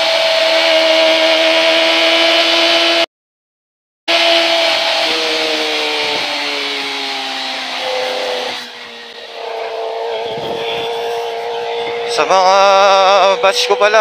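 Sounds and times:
motorcycle engine at high revs: 0:00.0 - 0:03.1, 0:04.1 - 0:14.0
wind noise: 0:10.1 - 0:11.1.

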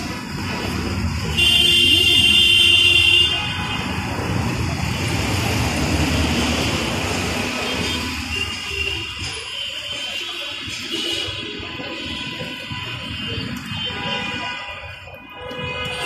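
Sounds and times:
rumble of passing traffic: 0:00.0 - 0:16.0
vehicle horn: 0:01.3 - 0:04.0, 0:07.7 - 0:16.0.

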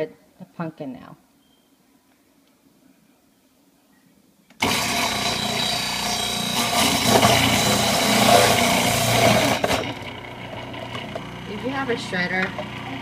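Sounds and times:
food processor motor whining: 0:04.6 - 0:13.0.

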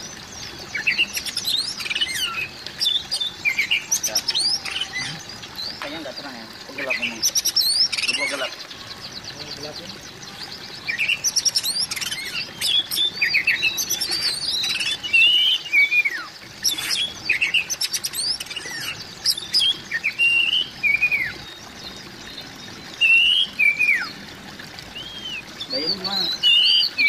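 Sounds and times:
bird singing whistled phrases: 0:06.8 - 0:21.6, 0:22.4 - 0:24.2, 0:24.9 - 0:27.0.

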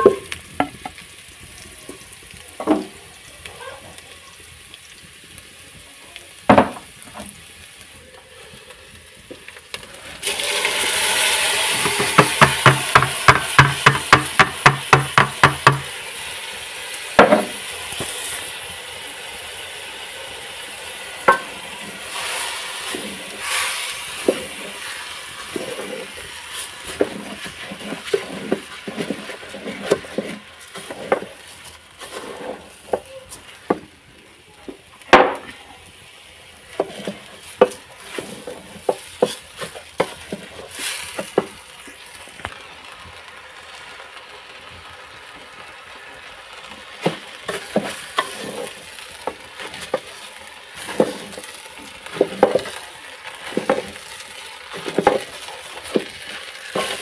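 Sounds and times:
light sizzle: 0:00.0 - 0:57.0
wooden stick scraping metal pot: 0:21.3 - 0:33.6, 0:36.7 - 0:41.5, 0:47.5 - 0:50.2, 0:50.8 - 0:52.8, 0:54.7 - 0:57.0.

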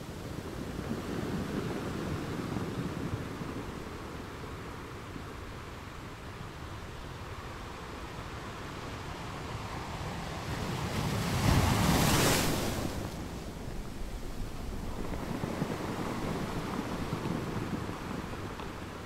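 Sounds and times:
waves breaking on beach: 0:00.0 - 0:19.0
wind buffeting microphone: 0:00.0 - 0:19.0.

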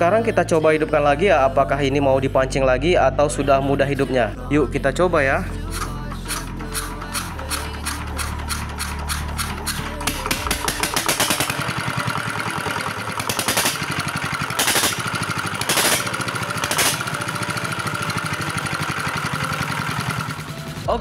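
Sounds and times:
diesel engine running: 0:00.0 - 0:21.0
hand crank starting engine: 0:05.4 - 0:20.9
loud engine bangs: 0:05.9 - 0:17.4.

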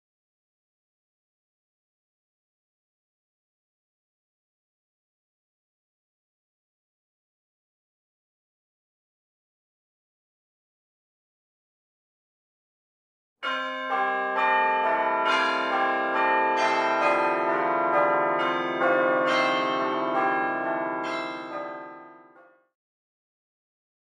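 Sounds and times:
church bells ringing a peal: 0:13.4 - 0:22.5.

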